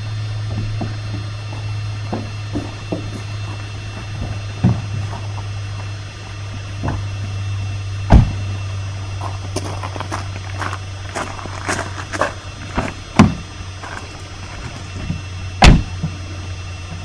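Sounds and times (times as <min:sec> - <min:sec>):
steady low hum: 0:00.0 - 0:17.0
knocks and thumps: 0:00.5 - 0:03.3, 0:04.0 - 0:05.3, 0:12.8 - 0:13.5.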